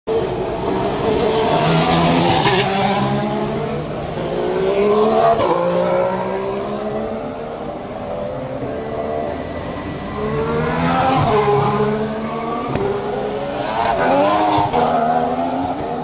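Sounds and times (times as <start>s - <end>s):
racing car engines accelerating past: 0.2s - 7.5s.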